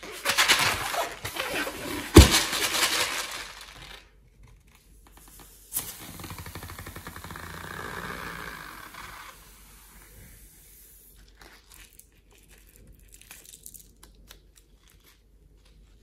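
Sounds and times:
balloon rustling and rubbing: 0.0 - 3.6.

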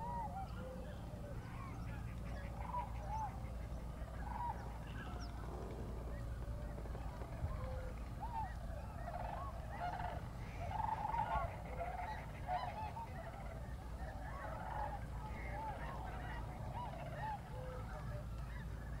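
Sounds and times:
geese honking: 0.0 - 5.5, 7.4 - 19.0.

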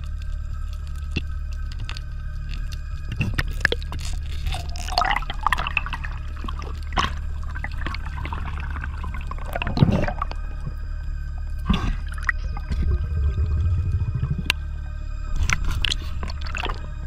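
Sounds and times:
clicks and crackles: 0.0 - 8.5, 15.3 - 16.8
steady low hum: 0.0 - 17.0
underwater bubbling and gurgling: 0.0 - 17.0.

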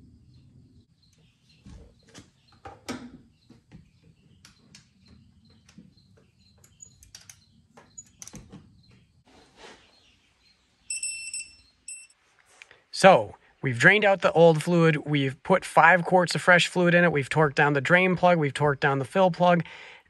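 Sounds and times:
dashboard warning chime beeping: 10.9 - 12.2.

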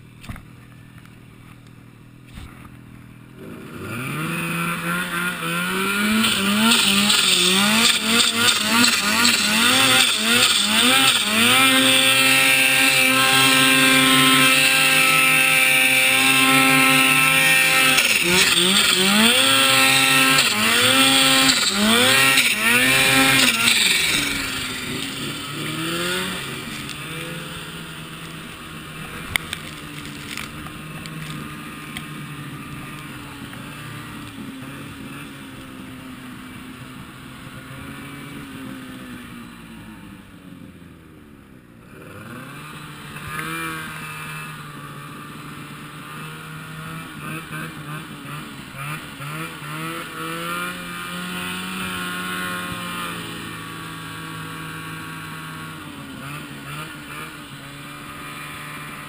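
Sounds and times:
snowmobile engine revving: 2.1 - 40.3, 41.8 - 59.0.

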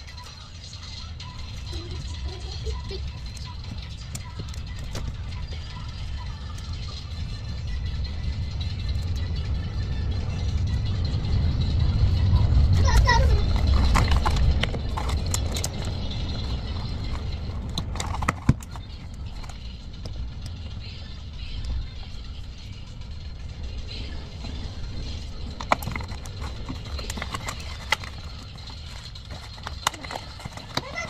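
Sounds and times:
low rumble: 5.2 - 18.0
cardboard box rustling: 13.5 - 19.5, 25.6 - 31.0.

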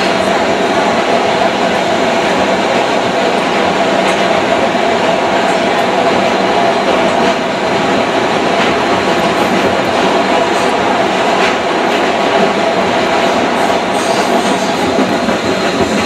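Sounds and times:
subway wheels on track: 0.0 - 16.0.

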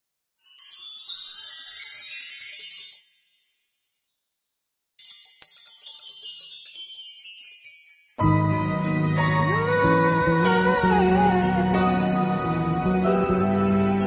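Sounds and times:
high glittering chime sparkles: 0.4 - 10.4.

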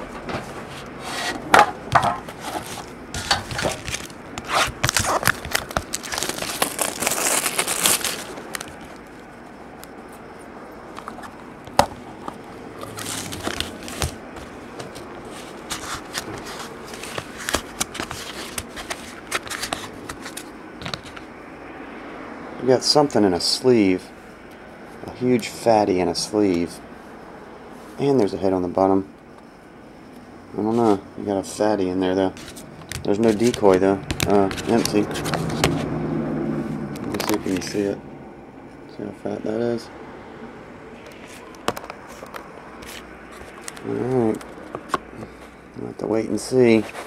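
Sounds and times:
packaging rustling and crinkling: 1.9 - 9.3, 10.9 - 21.3, 32.4 - 35.8.

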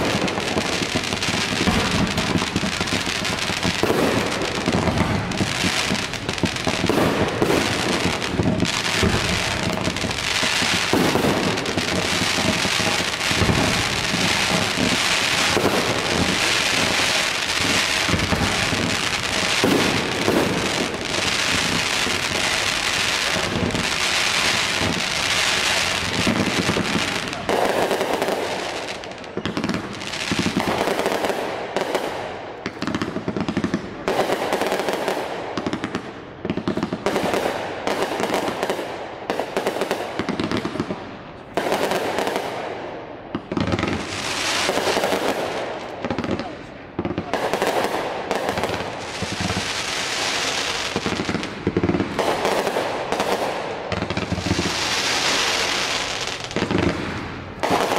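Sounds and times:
fireworks bangs: 0.0 - 57.9
fireworks hissing and crackling: 0.0 - 57.9.

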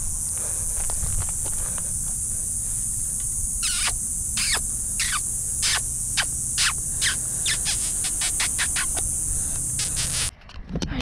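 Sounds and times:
insects buzzing: 0.0 - 10.3
bird whistling: 3.6 - 9.0.

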